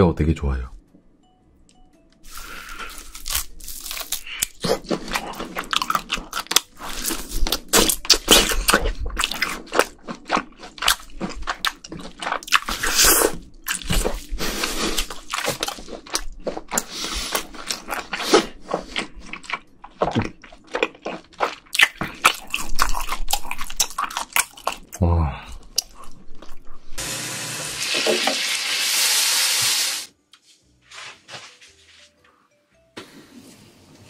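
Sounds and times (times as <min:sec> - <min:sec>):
close chewing of raw meat: 0:02.4 - 0:27.0.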